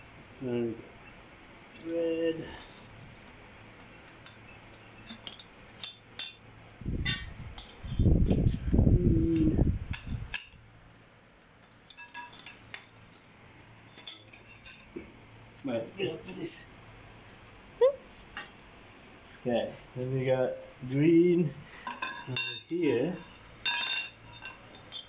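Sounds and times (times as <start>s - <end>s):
metal tubes clinking: 3.9s - 8.4s, 11.6s - 15.0s, 21.8s - 25.0s.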